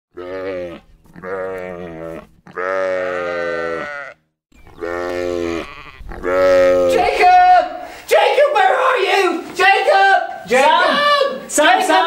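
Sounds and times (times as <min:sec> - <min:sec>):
sheep bleating: 0:00.1 - 0:07.6.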